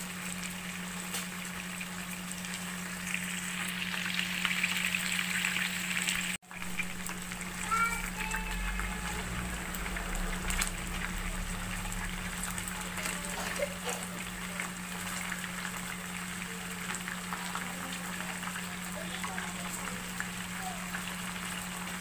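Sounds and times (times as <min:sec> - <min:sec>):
chicken sizzling in frying pan: 0:00.0 - 0:22.0
steady low hum: 0:06.5 - 0:17.3.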